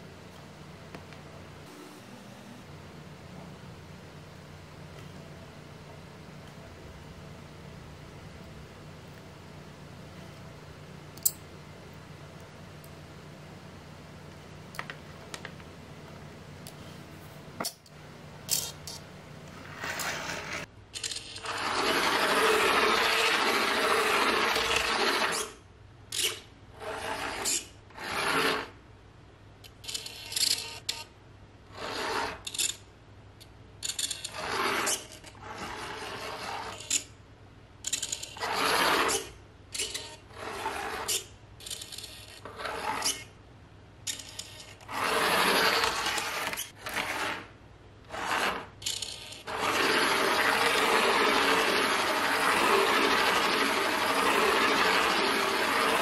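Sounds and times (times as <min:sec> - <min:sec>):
toy car motor whirring: 0:19.8 - 0:25.6, 0:48.1 - 0:56.0.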